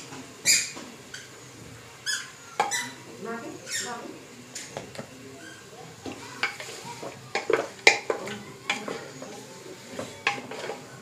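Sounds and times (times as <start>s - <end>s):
meat sizzling in oil: 5.4s - 11.0s.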